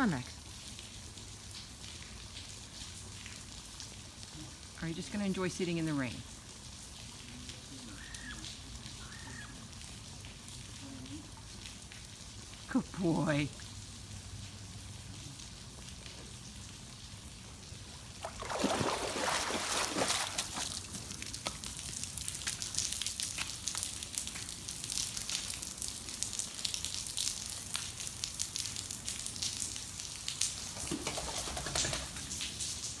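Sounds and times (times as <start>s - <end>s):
rain falling on a pool: 0.0s - 33.0s
dripping water: 6.2s - 30.9s
dog splashing in water: 18.1s - 23.9s.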